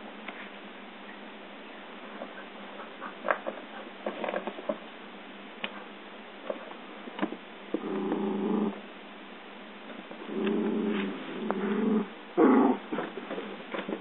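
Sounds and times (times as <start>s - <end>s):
dog growling: 7.8s - 8.9s, 10.2s - 14.0s.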